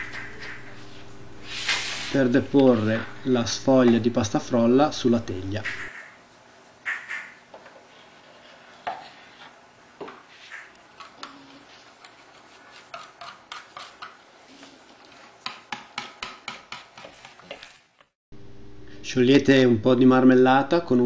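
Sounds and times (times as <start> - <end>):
scraper scraping baking tray: 0.0 - 3.0, 6.9 - 18.2.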